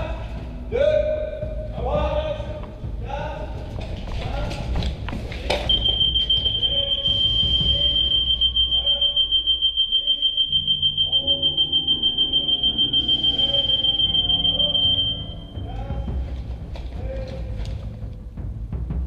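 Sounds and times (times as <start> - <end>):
high-pitched electronic beep: 5.7 - 15.6.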